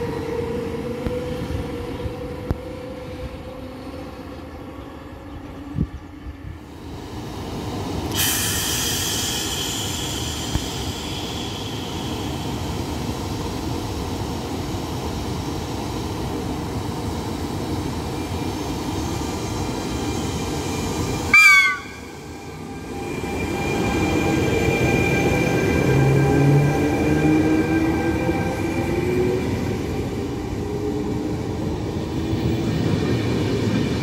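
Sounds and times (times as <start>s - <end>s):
locomotive horn toot: 21.3s - 22.2s.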